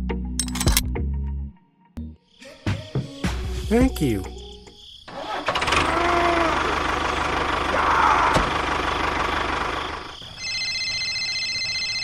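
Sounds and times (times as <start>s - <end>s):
model tractor engine running: 5.2s - 7.8s, 8.5s - 10.1s.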